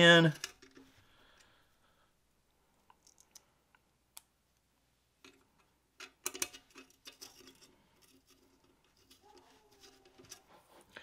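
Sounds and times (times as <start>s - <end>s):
small metal clicks and taps: 5.2s - 10.4s.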